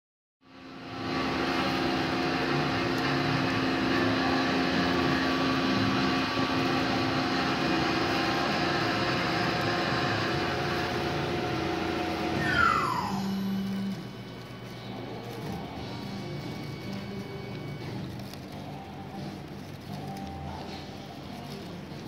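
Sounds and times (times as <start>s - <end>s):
mechanical hum: 0.4s - 22.0s
falling whistle-like glide: 12.2s - 14.2s.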